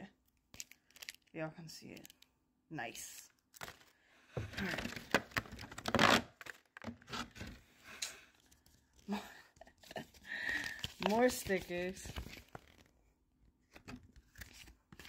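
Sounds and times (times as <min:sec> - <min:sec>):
paper handling rustles: 0:03.5 - 0:07.6, 0:08.4 - 0:12.9
cardboard tearing: 0:04.6 - 0:07.5.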